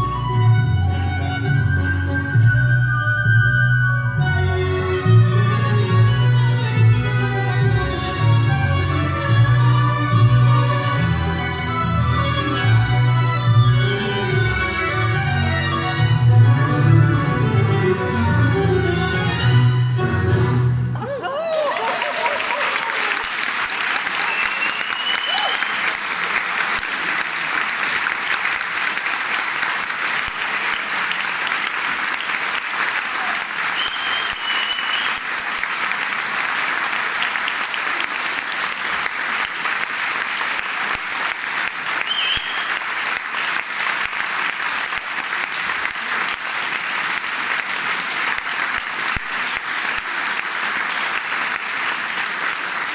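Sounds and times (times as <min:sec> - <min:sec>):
audience applauding: 0:21.0 - 0:52.9
short high whistles: 0:24.2 - 0:25.7, 0:33.8 - 0:35.2, 0:42.0 - 0:42.8.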